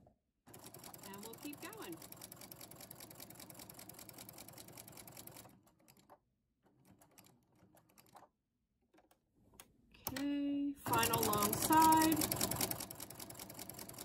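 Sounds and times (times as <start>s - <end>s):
sewing machine stitching: 0.5s - 8.3s, 10.9s - 14.0s.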